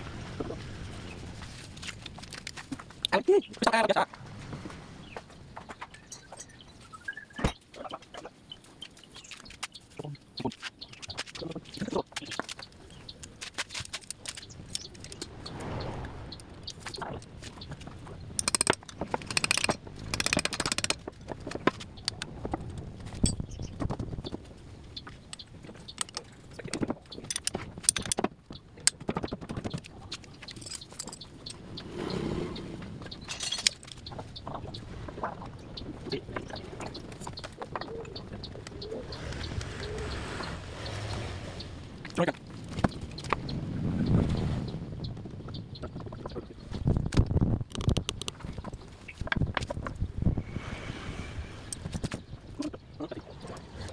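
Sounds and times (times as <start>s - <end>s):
metal engine parts clicking: 18.3s - 22.3s, 25.3s - 29.0s, 29.6s - 31.6s, 33.1s - 34.1s.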